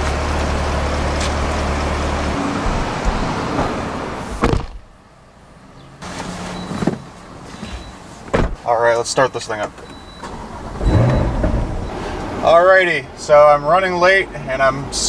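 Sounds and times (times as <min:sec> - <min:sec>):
car door and seat knocks: 0:04.4 - 0:04.8, 0:08.3 - 0:08.6.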